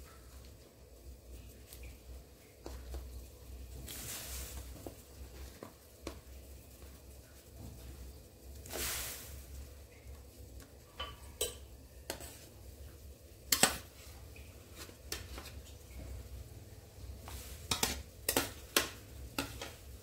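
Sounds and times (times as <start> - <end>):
leaves splashing into water: 3.8 - 4.8, 8.6 - 9.5.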